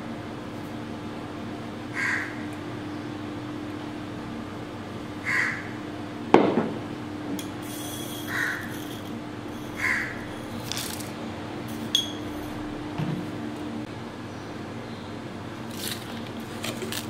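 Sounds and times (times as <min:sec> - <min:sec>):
steady low hum: 0:00.0 - 0:17.0
crow cawing: 0:01.9 - 0:02.5, 0:05.2 - 0:05.8, 0:08.3 - 0:08.7, 0:09.8 - 0:10.2.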